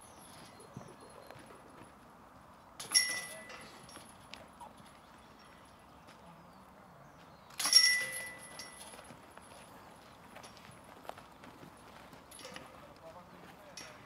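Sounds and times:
disc striking basket chains: 0:02.8 - 0:05.8, 0:07.5 - 0:09.5, 0:12.3 - 0:12.7.

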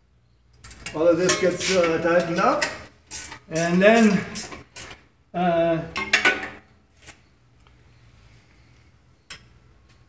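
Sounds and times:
man speaking: 0:00.9 - 0:02.8, 0:03.5 - 0:04.4, 0:05.3 - 0:06.0.

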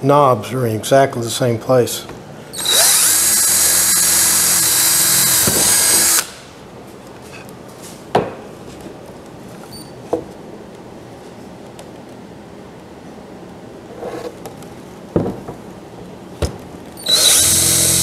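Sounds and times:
cordless drill boring wood: 0:02.6 - 0:06.4, 0:17.0 - 0:18.0.

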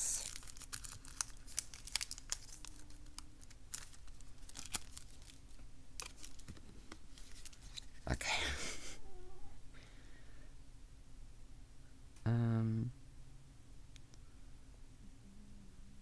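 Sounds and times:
light rustling of cards: 0:00.0 - 0:08.2.

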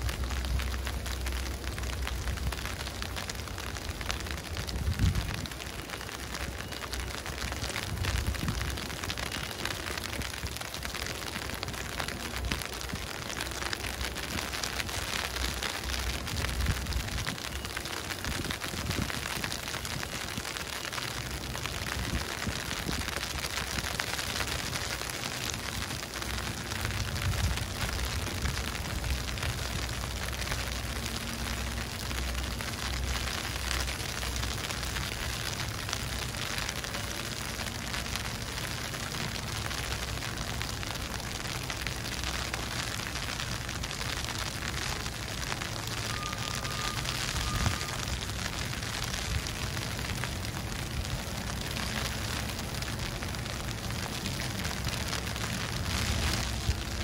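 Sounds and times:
hiss of falling snow: 0:00.0 - 0:57.0
wind rumbling on microphone: 0:00.0 - 0:57.0.

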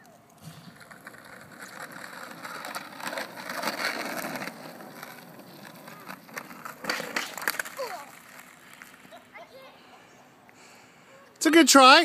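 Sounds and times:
skateboard wheels rolling on asphalt: 0:00.2 - 0:09.6.

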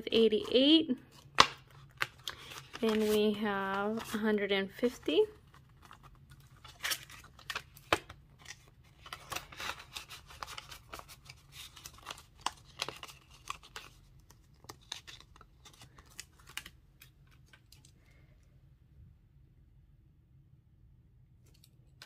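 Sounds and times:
paper money rustling: 0:00.4 - 0:18.1.

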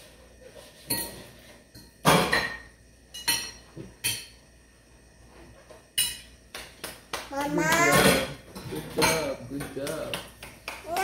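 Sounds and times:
forks clinking on plates: 0:07.8 - 0:10.4.

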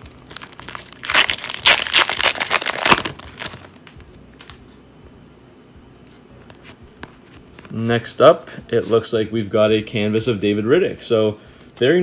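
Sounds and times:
wrapper crinkling and tearing: 0:00.0 - 0:03.9.

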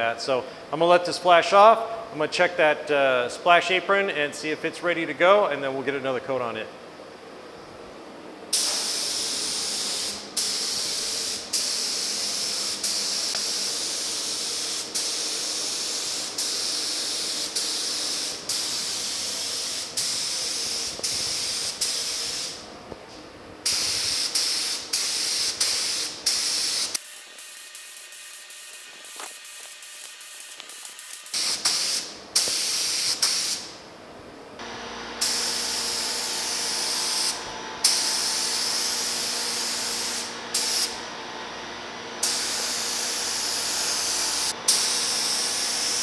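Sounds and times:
paint spray gun hissing: 0:08.5 - 0:22.6, 0:23.7 - 0:33.8, 0:35.1 - 0:41.0, 0:42.2 - 0:46.0.

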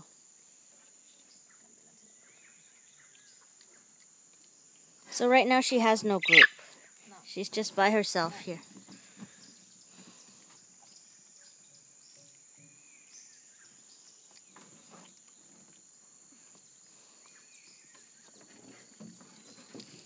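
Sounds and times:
small scattered ticks: 0:00.7 - 0:07.6
faint bird chirps: 0:06.0 - 0:07.1.

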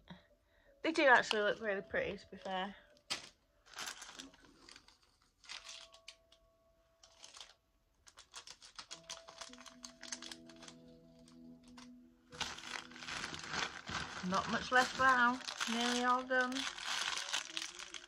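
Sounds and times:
packaging crinkling and rustling: 0:02.4 - 0:06.4, 0:07.0 - 0:18.0.

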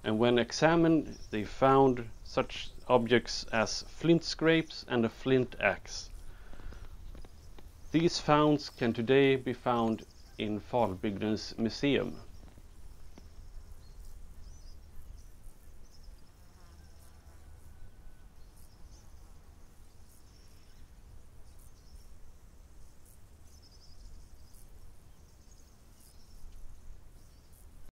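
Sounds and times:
faint high chirps and ticks: 0:05.6 - 0:27.9.

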